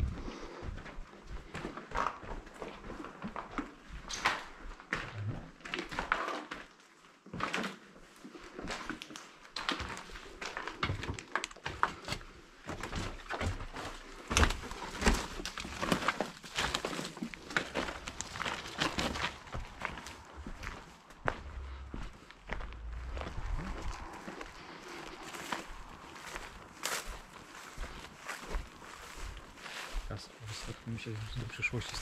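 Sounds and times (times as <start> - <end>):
footsteps on hard floor: 17.9 - 30.1.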